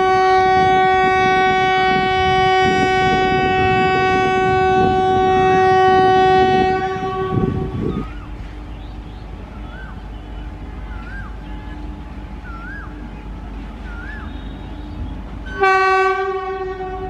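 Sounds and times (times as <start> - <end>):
locomotive air horn blast: 0.0 - 8.1, 14.2 - 17.0
rail wagons rumbling and clattering: 0.0 - 17.0.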